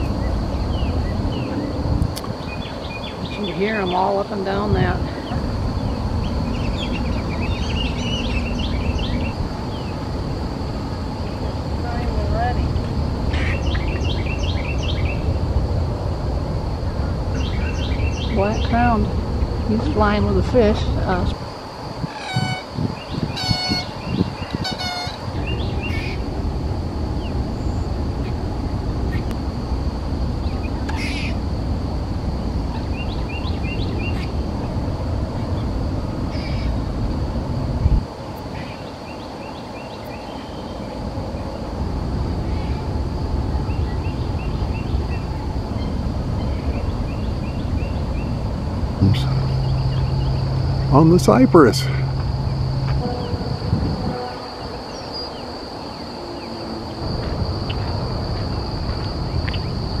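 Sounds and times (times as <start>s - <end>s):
bird chirping: 0.0s - 1.8s, 2.4s - 4.2s, 5.2s - 10.0s, 12.7s - 15.4s, 17.0s - 19.0s, 32.7s - 34.4s, 43.6s - 53.4s
low outdoor rumble: 0.0s - 23.1s, 23.8s - 38.5s, 40.3s - 55.8s
insects droning: 0.0s - 60.0s
low rumbling background: 41.2s - 54.1s.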